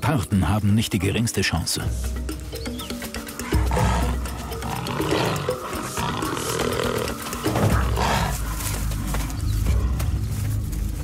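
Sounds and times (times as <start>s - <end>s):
animals snarling and growling: 3.2s - 9.6s.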